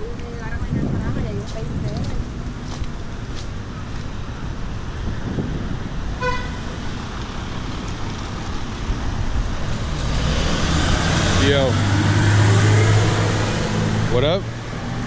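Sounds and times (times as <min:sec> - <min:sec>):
road traffic rumble: 0:00.0 - 0:15.0
short car horn toot: 0:06.2 - 0:06.6.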